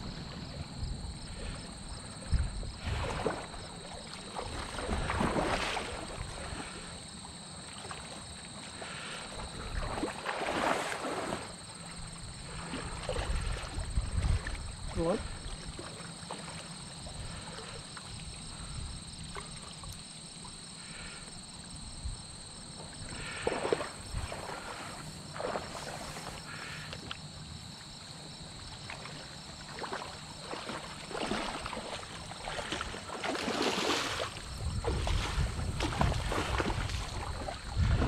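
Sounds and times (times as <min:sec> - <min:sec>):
fish splashing in water: 0:02.8 - 0:06.8, 0:08.8 - 0:11.7, 0:23.1 - 0:26.8, 0:28.8 - 0:38.0.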